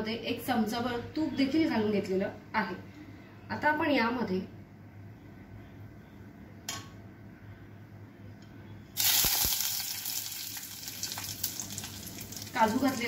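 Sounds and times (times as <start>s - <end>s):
nuts sizzling in hot fat: 9.0s - 13.0s.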